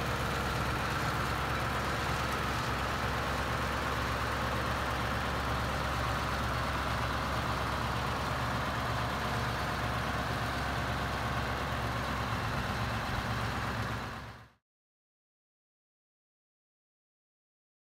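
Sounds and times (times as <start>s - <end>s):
diesel truck engine running: 0.0s - 14.6s.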